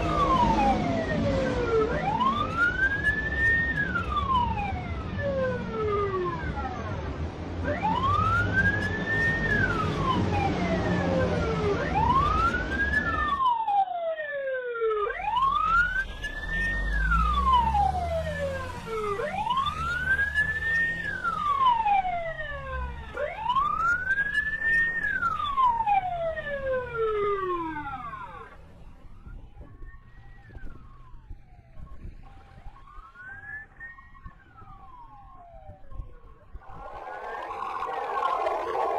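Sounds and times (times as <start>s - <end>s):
low traffic rumble: 0.0s - 13.4s, 15.2s - 38.9s
police siren wailing: 0.0s - 38.9s.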